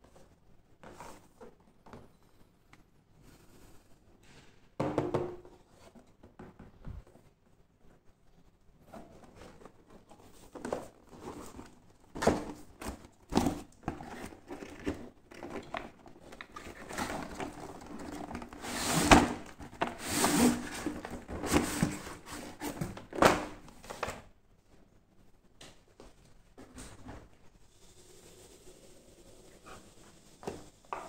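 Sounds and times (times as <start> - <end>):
cardboard and plastic packaging handled: 8.8 - 24.3.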